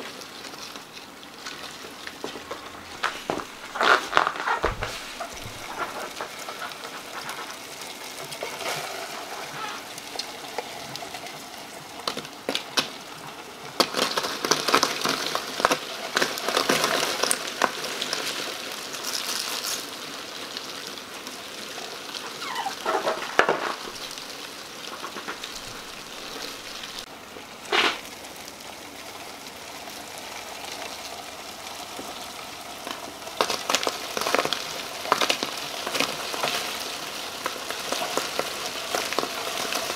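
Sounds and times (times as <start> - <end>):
roaches scratching on cardboard: 1.5 - 10.0, 22.3 - 27.1, 27.7 - 28.0.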